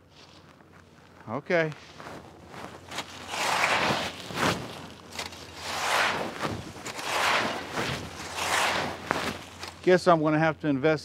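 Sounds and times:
rake scraping dry leaves: 1.8 - 9.9.

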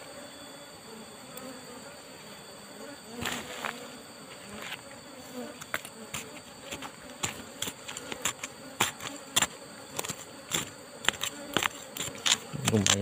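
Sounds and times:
bees buzzing: 0.0 - 13.0
soil and stones scraped by hand: 3.2 - 13.0.

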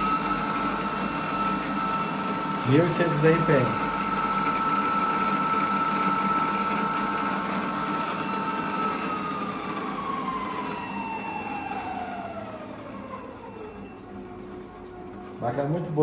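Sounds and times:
mill drill motor whining: 0.0 - 16.0.

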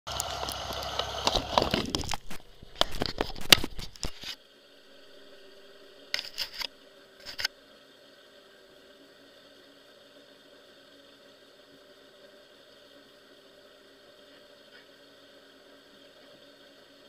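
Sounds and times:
engine idling hum: 0.1 - 2.8
camera handling noise: 1.0 - 4.4, 6.1 - 7.5.

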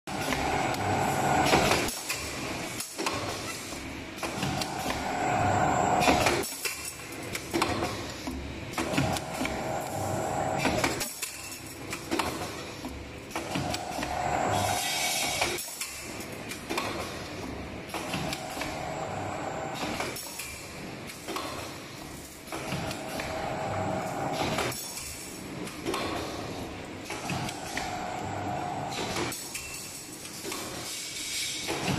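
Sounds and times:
machine rollers whining: 0.1 - 2.0, 4.2 - 6.5, 8.8 - 11.2, 13.4 - 15.9, 17.9 - 20.2, 22.6 - 24.8, 27.2 - 29.4.

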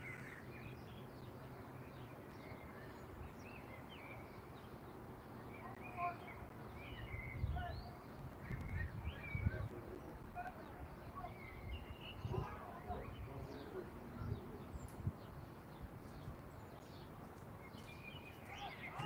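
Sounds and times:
songbirds chirping: 0.0 - 19.0
wind buffeting microphone: 6.4 - 19.0.

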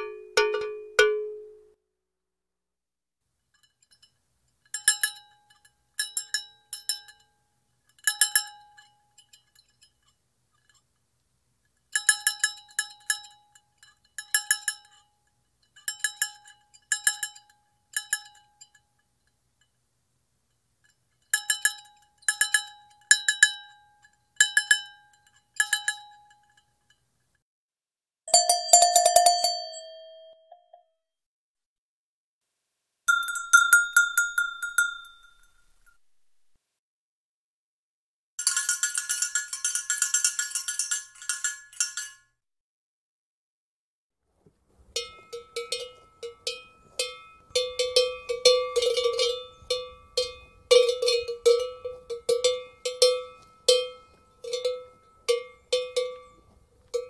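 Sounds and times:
cowbells clanking: 0.0 - 1.6, 3.6 - 10.9, 11.9 - 18.9, 20.9 - 27.1, 28.3 - 30.5, 33.1 - 36.0, 38.4 - 42.3, 44.4 - 57.0
lower-pitched bell clanging: 28.3 - 30.4, 33.1 - 35.6, 45.0 - 57.0.

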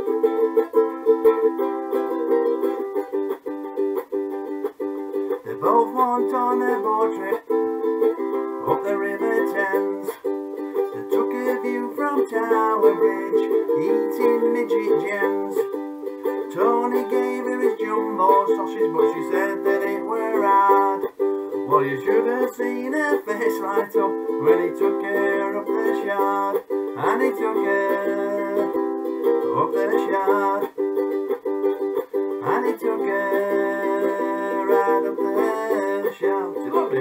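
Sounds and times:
ukulele strumming: 0.0 - 37.0
man singing: 5.4 - 15.7, 16.4 - 30.8, 32.4 - 37.0.

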